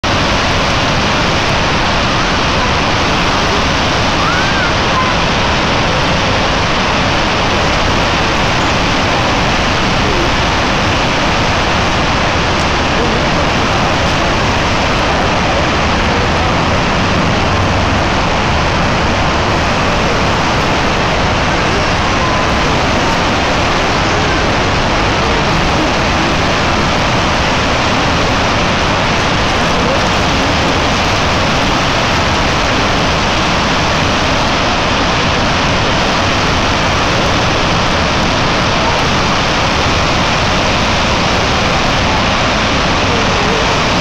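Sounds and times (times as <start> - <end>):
water rushing from spillway: 0.0 - 44.0.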